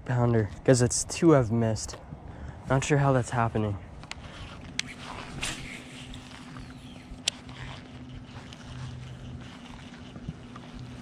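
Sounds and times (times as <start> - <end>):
steady low hum: 0.0 - 11.0
fishing reel clicks: 4.0 - 11.0.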